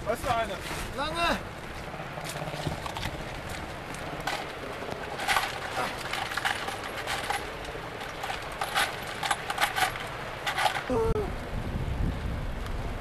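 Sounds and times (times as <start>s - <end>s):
metal screws clinking and rattling: 2.2s - 10.9s.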